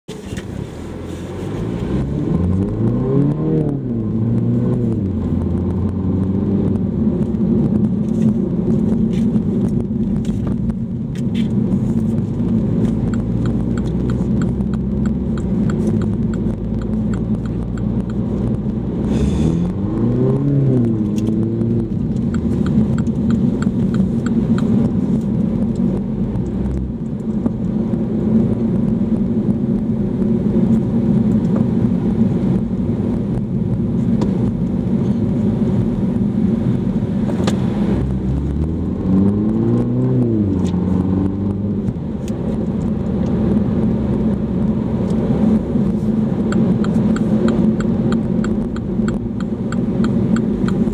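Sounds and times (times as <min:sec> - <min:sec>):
car engine humming: 0:00.1 - 0:50.9
faint regular ticking: 0:13.0 - 0:18.2, 0:22.0 - 0:24.8, 0:46.5 - 0:50.9.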